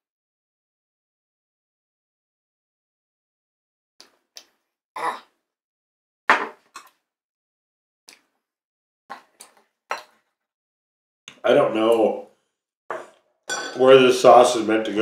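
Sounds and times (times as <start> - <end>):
glass bottle set on wooden table: 6.3 - 6.6
cutlery clinking on ceramic plate: 12.9 - 14.0.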